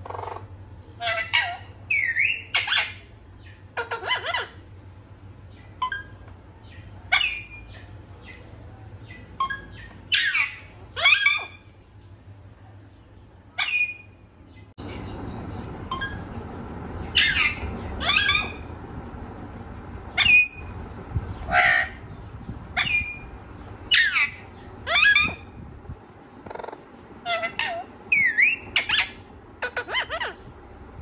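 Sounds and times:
parrot squawking and whistling: 0:01.0 - 0:03.0, 0:03.8 - 0:04.6, 0:07.1 - 0:07.8, 0:09.4 - 0:11.6, 0:13.6 - 0:14.2, 0:17.1 - 0:18.6, 0:20.2 - 0:20.8, 0:22.8 - 0:23.3, 0:23.9 - 0:25.5, 0:26.5 - 0:30.4.

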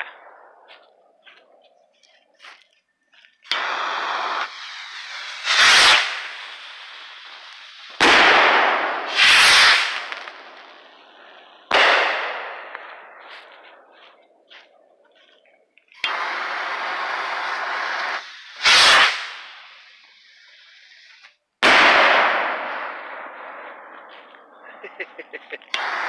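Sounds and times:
firework rockets bursting: 0:03.4 - 0:14.0, 0:16.0 - 0:26.0
firework hiss and crackle: 0:03.4 - 0:14.2, 0:15.9 - 0:26.0.

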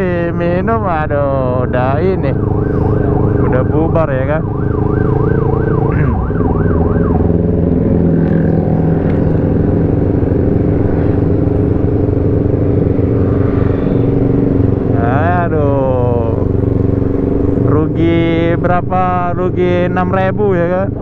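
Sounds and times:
motorcycle engine running: 0:00.0 - 0:21.0
siren yelping: 0:00.9 - 0:10.1.

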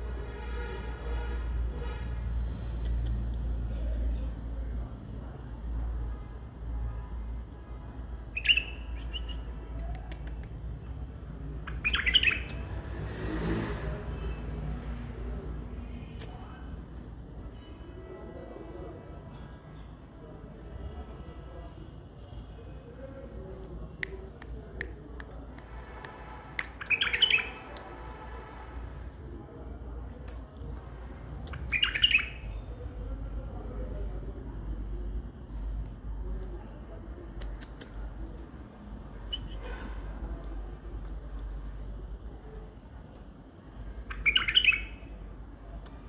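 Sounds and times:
bird chirping: 0:08.3 - 0:09.7, 0:11.5 - 0:12.6, 0:26.6 - 0:27.6, 0:31.5 - 0:32.7, 0:44.0 - 0:45.2.

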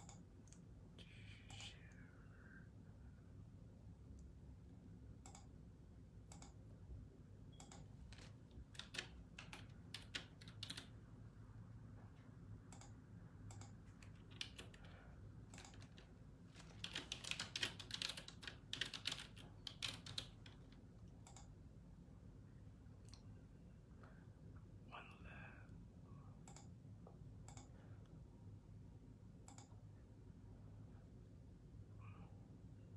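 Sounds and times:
faint low room hum: 0:00.0 - 0:32.9
computer keyboard typing: 0:05.2 - 0:05.5, 0:06.2 - 0:06.6, 0:07.5 - 0:11.0, 0:12.7 - 0:21.6, 0:29.4 - 0:29.8.

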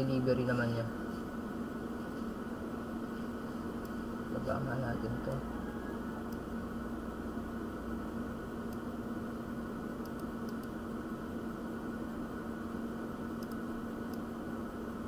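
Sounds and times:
background hum and hiss: 0:00.0 - 0:15.0
computer mouse clicks: 0:10.0 - 0:10.8, 0:13.3 - 0:14.3.

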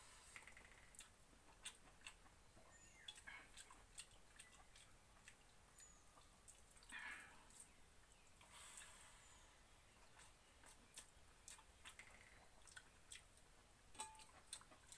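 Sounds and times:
person chewing: 0:00.7 - 0:02.3, 0:03.0 - 0:07.7, 0:10.1 - 0:13.5, 0:14.1 - 0:14.9
fingers squelching wet rice: 0:03.0 - 0:05.6, 0:10.1 - 0:13.5.

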